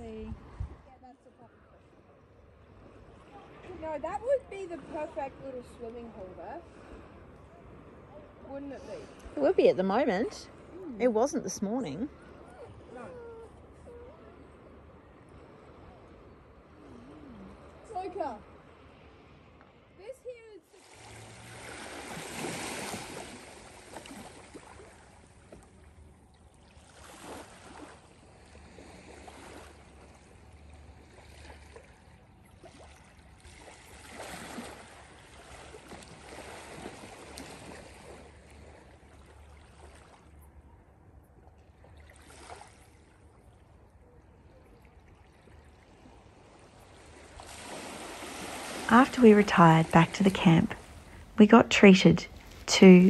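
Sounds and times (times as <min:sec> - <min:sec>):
ripples lapping at shore: 0:20.7 - 0:53.0.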